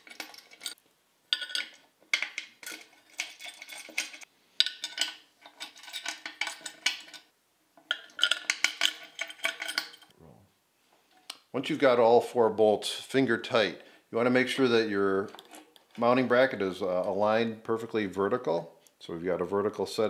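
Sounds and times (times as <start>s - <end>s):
bolts clinking on metal plate: 0.0s - 10.1s, 15.3s - 16.0s.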